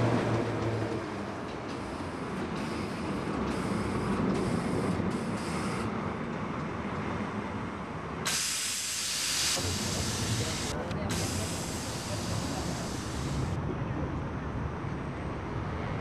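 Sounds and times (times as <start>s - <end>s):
train wheels rumbling on rail: 0.0s - 13.9s
steady hiss: 8.3s - 13.6s.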